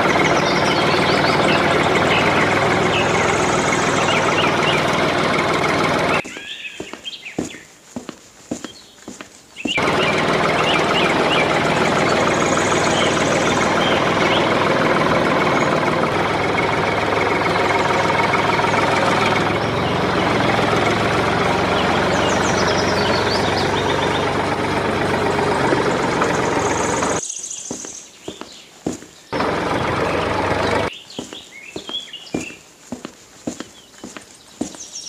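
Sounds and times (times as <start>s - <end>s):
tractor engine running: 0.0s - 35.0s.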